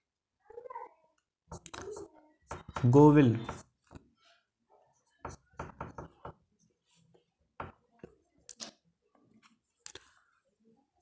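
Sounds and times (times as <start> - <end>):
faint clicks and taps: 5.2 - 10.2.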